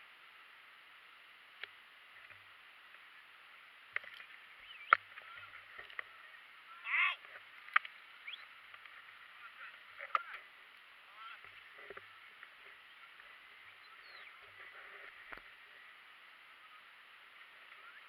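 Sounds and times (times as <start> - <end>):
wavering cry: 6.8 - 7.2.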